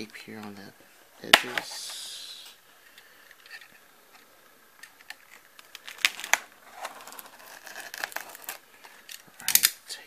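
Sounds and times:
tape snapping: 1.2s - 1.7s.

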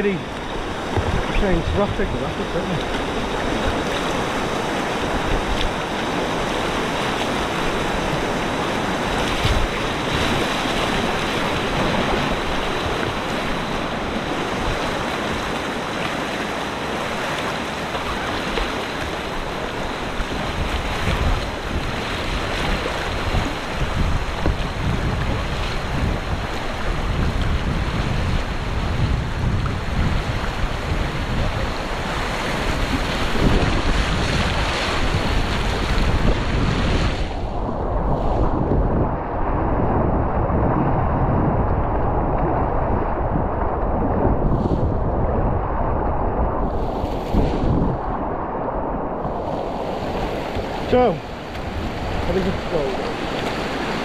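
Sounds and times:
wind buffeting microphone: 0.0s - 54.0s
river whitewater rushing: 49.2s - 54.0s.

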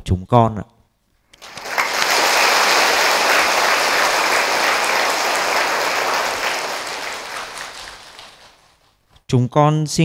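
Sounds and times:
audience applauding: 1.3s - 8.8s.

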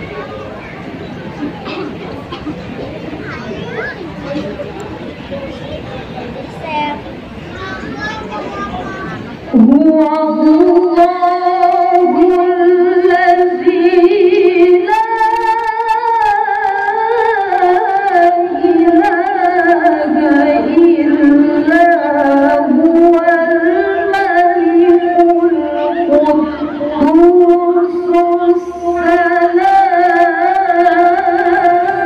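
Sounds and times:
woman chanting into a microphone: 9.5s - 32.0s.

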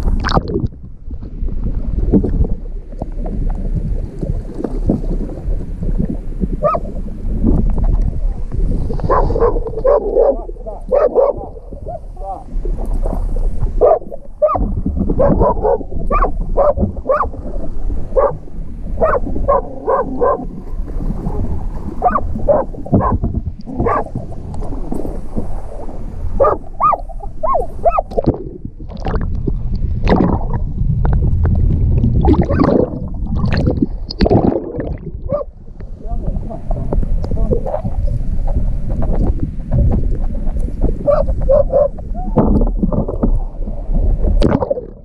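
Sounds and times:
low rumble of water: 0.0s - 45.0s
water churning and bubbling: 0.0s - 45.0s
wind on microphone: 0.0s - 45.0s.

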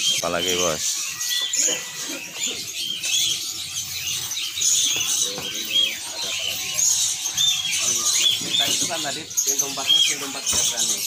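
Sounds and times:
songbirds chirping and twittering: 0.0s - 11.0s.

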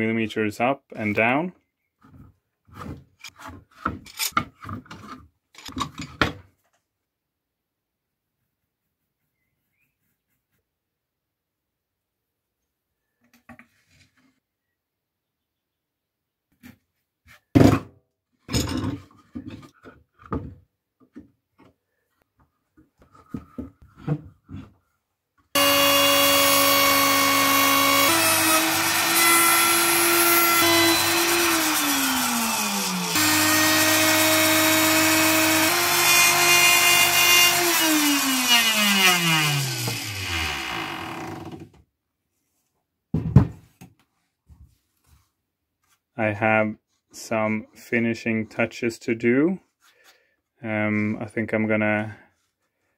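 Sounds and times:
electric router whining: 25.6s - 41.6s.

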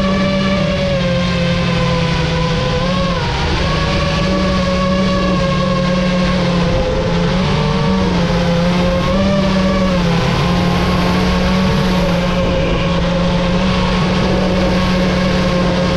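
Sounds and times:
quadcopter motors whining: 0.0s - 15.9s.

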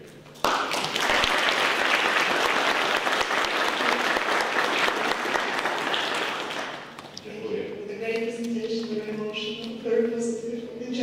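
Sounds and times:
audience applauding: 0.4s - 7.1s.

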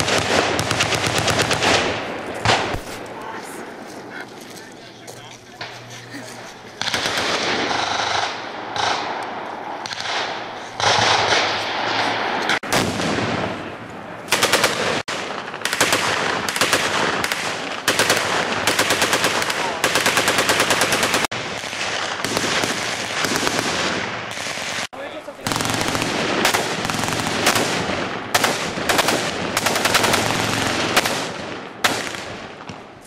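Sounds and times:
automatic machine gun fire: 0.0s - 2.8s, 6.8s - 9.0s, 14.3s - 32.2s.

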